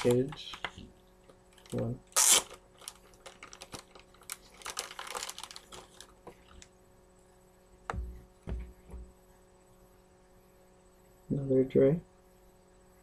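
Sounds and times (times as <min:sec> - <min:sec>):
packaging rustling: 0:00.0 - 0:00.8, 0:01.5 - 0:06.7
low thump: 0:07.9 - 0:09.1.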